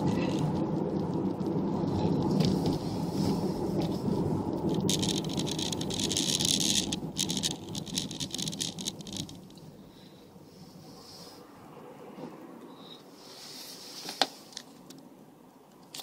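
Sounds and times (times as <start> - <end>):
hissy crackle: 0.0 - 11.5
car road and engine noise: 0.0 - 16.0.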